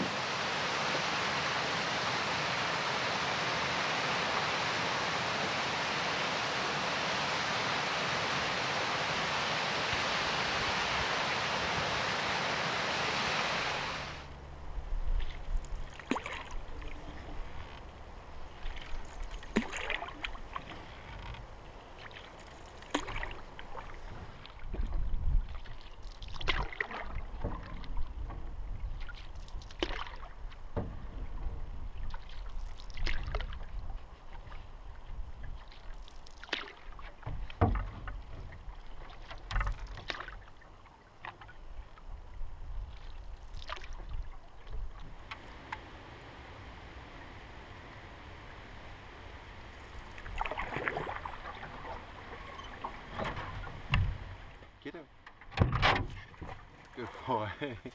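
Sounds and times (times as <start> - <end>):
paddle strokes in water: 0.0 - 14.4, 15.0 - 55.4
water splashing and dripping: 15.2 - 17.2, 18.5 - 21.3, 21.9 - 31.4, 32.0 - 45.8, 49.7 - 54.7.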